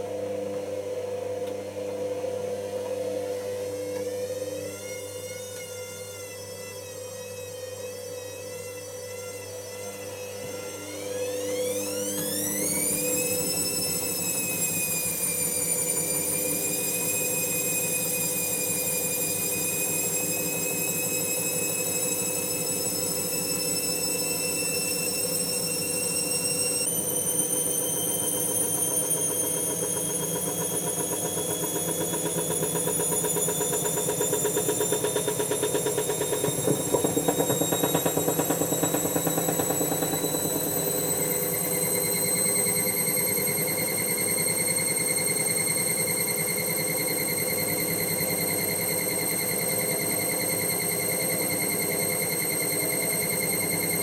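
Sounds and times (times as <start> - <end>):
washing machine motor whining: 0.0 - 54.0.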